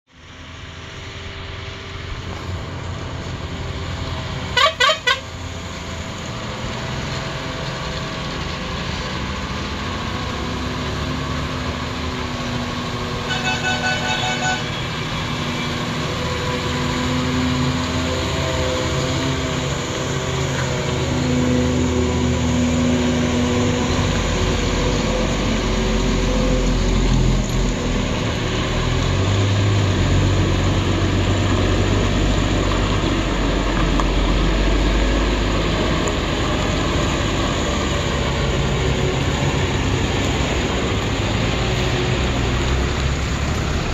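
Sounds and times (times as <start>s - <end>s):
lorry diesel engines running: 0.1s - 43.9s
horn toots: 4.5s - 5.3s, 13.2s - 14.9s
horn sounding: 4.5s - 5.4s, 13.2s - 14.9s.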